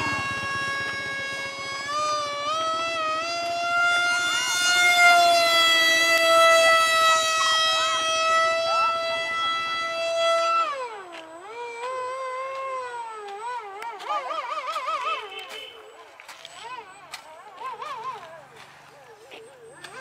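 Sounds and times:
model jet electric motor whine: 0:00.0 - 0:15.4.

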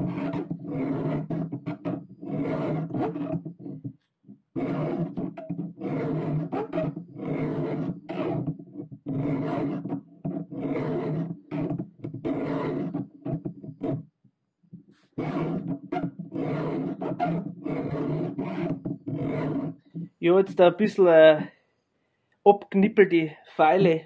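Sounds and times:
file rasping on saw chain: 0:00.0 - 0:03.9, 0:04.5 - 0:14.0, 0:15.0 - 0:20.1.

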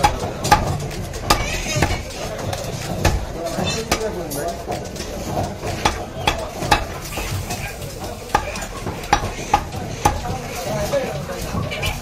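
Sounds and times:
cleaver chopping meat on wood: 0:00.0 - 0:04.2, 0:05.3 - 0:10.7
steady background noise: 0:00.0 - 0:12.0.

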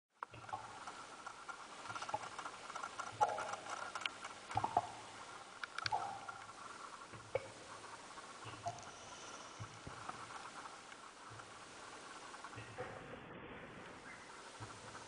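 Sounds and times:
faint steady tone: 0:00.2 - 0:15.0
low hum: 0:00.2 - 0:15.0
sharp clicks: 0:05.6 - 0:06.5.

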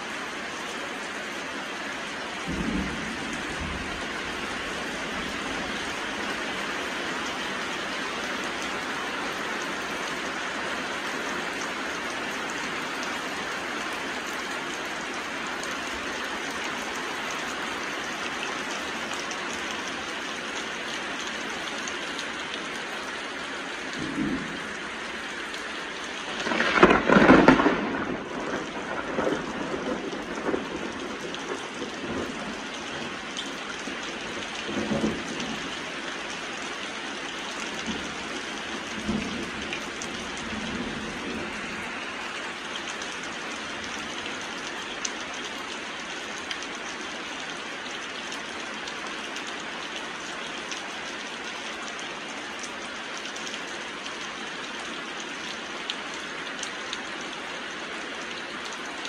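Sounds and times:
heavy rain: 0:00.0 - 0:59.0
low thunder rumbles: 0:02.4 - 0:06.1, 0:23.8 - 0:33.2, 0:34.3 - 0:35.8, 0:37.8 - 0:42.0
loud thunderclap: 0:02.5 - 0:04.2, 0:24.0 - 0:24.8, 0:26.3 - 0:32.4.

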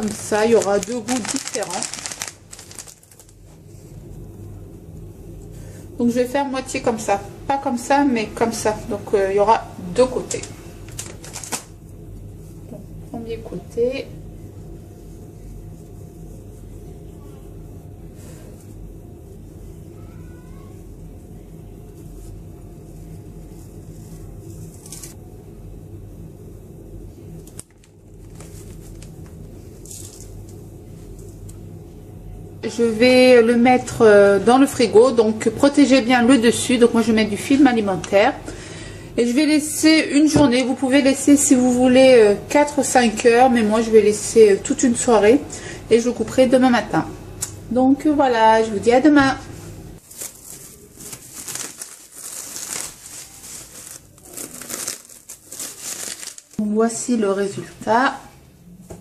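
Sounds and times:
cling film crinkling: 0:00.0 - 0:03.6, 0:10.3 - 0:11.8, 0:23.3 - 0:25.2, 0:27.5 - 0:31.6, 0:50.0 - 0:56.6
crumbs rustling: 0:00.0 - 0:05.6, 0:10.4 - 0:12.7, 0:20.7 - 0:25.2, 0:28.1 - 0:31.5, 0:50.0 - 0:56.6
steady low hum: 0:00.0 - 0:59.0.

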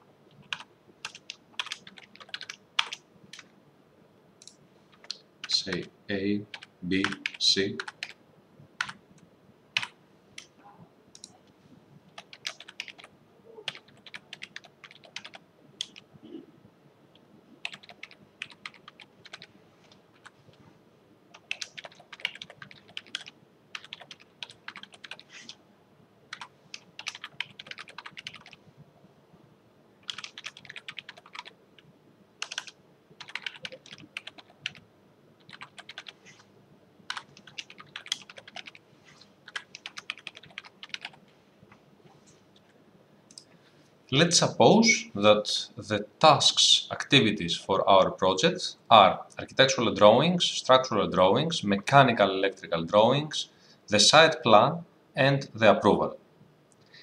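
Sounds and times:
typing on keyboard: 0:00.4 - 0:03.5, 0:06.5 - 0:08.2, 0:08.8 - 0:09.0, 0:09.8 - 0:10.5, 0:12.2 - 0:13.1, 0:13.7 - 0:16.0, 0:17.6 - 0:19.5, 0:21.3 - 0:25.3, 0:26.3 - 0:28.6, 0:30.0 - 0:31.6, 0:32.4 - 0:34.8, 0:35.4 - 0:36.2, 0:37.1 - 0:38.8, 0:39.5 - 0:41.2.

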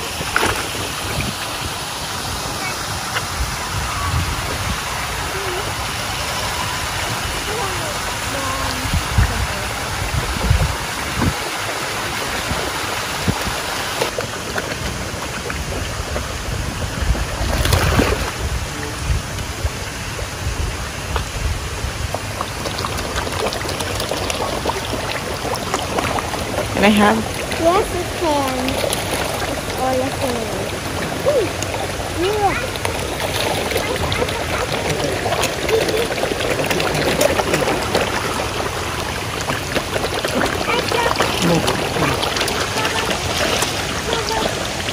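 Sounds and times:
fish splashing at water surface: 0:00.0 - 0:20.4, 0:21.0 - 0:44.9
moving water wash: 0:00.0 - 0:44.9
wind buffeting microphone: 0:02.4 - 0:05.8, 0:06.8 - 0:13.7.

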